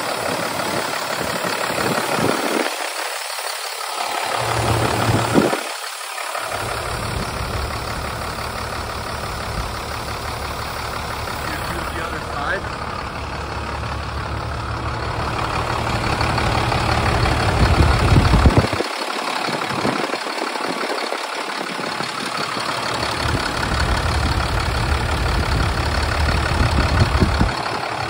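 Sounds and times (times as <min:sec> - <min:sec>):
diesel engine idling: 0:00.0 - 0:28.0.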